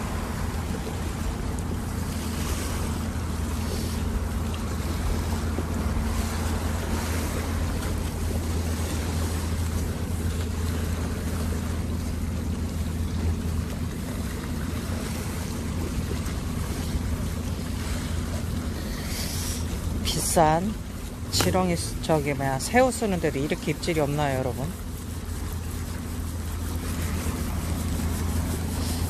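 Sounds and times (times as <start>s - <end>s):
waves washing against rocks: 0.0s - 29.0s.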